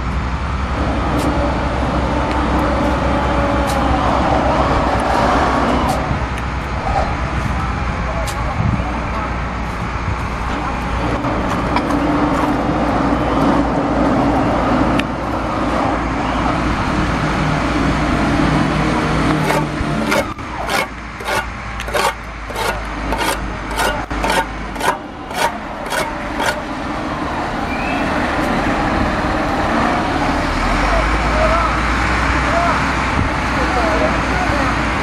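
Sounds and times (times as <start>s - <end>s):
trowel scraping mortar: 19.4s - 26.7s.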